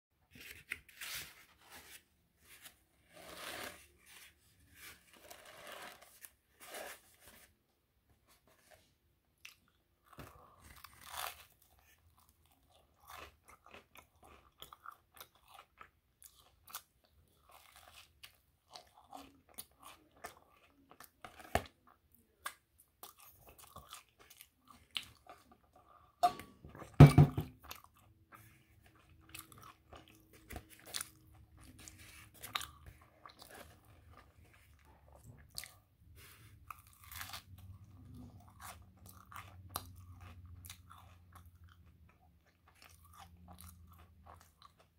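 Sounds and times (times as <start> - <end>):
crunchy chewing: 9.4 - 21.8, 22.4 - 26.0, 27.6 - 44.9
thump: 27.0 - 27.5.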